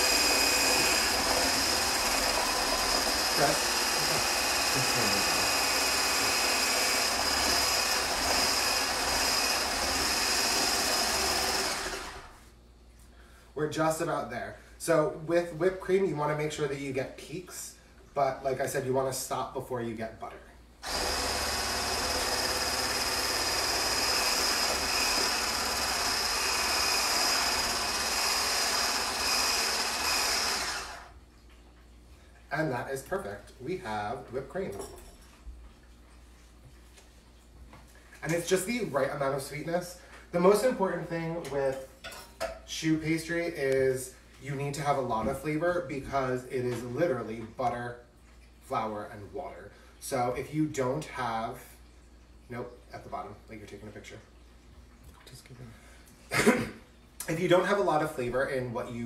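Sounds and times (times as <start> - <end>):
immersion blender whining: 0.0 - 12.5, 20.8 - 31.2.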